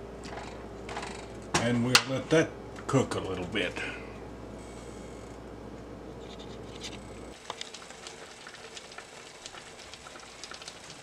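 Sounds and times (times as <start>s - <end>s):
vegetables sizzling in oil: 7.4s - 11.0s.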